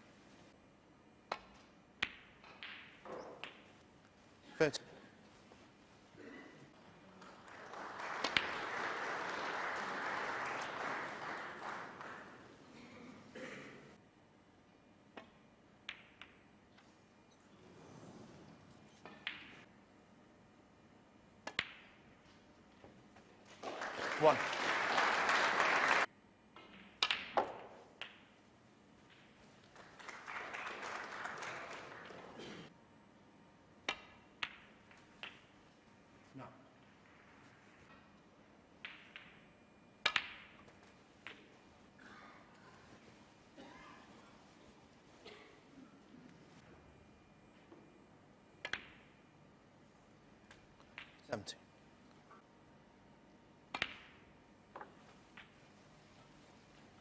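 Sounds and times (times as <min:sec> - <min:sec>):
crowd applauding: 0:07.0 - 0:12.7, 0:23.6 - 0:26.1, 0:29.6 - 0:32.7
snooker balls clicking: 0:33.8 - 0:35.6, 0:38.8 - 0:41.6, 0:53.7 - 0:55.7.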